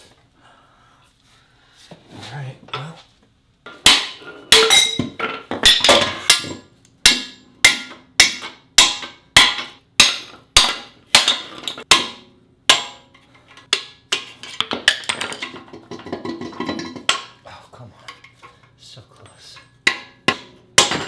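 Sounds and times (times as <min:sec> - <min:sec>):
hammer striking steel: 0:03.7 - 0:14.4, 0:19.6 - 0:21.0.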